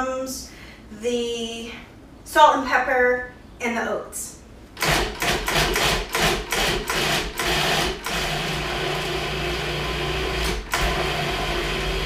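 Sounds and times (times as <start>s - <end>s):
food processor chopping: 4.8s - 12.0s.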